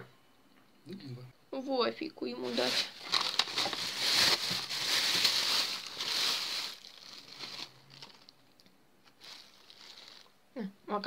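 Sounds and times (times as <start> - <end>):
plastic bag crinkling: 2.4 - 10.4.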